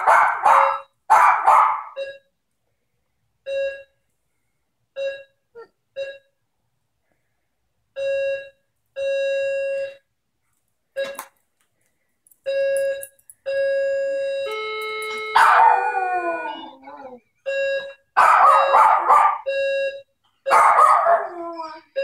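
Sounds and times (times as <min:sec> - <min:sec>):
electronic doorbell beeping: 0:00.0 - 0:01.1, 0:01.9 - 0:02.3, 0:08.0 - 0:10.1, 0:12.4 - 0:16.7, 0:17.4 - 0:22.0
dog howling: 0:15.5 - 0:17.2.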